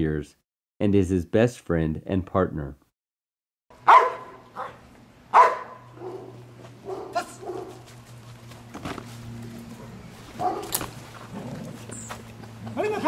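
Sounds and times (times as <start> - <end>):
dog barking: 3.8 - 7.9, 9.8 - 10.9.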